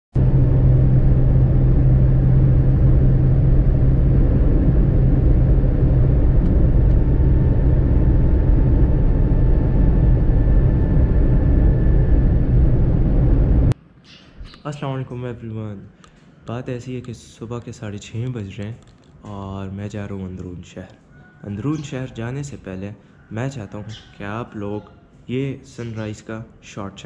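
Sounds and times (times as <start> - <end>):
low hum: 0.0 - 13.8
car engine and road rumble: 0.1 - 13.8.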